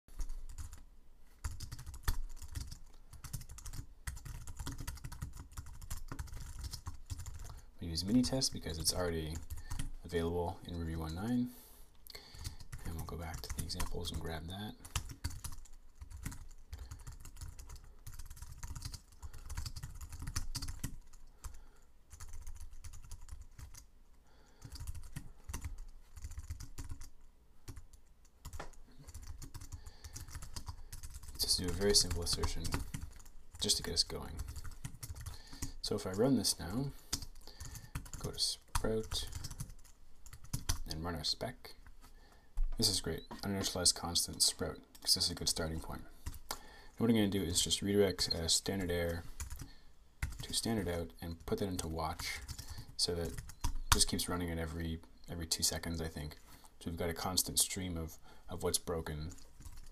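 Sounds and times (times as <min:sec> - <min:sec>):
typing on a keyboard: 0:00.2 - 0:00.8, 0:01.4 - 0:07.6, 0:14.8 - 0:23.9, 0:24.6 - 0:27.1, 0:27.7 - 0:35.8, 0:37.1 - 0:40.9, 0:49.4 - 0:50.6, 0:52.4 - 0:54.2, 0:59.3 - 0:59.9.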